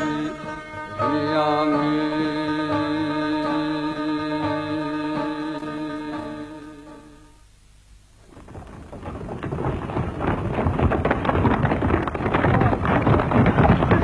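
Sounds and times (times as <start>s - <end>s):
background music: 0.0s - 7.5s.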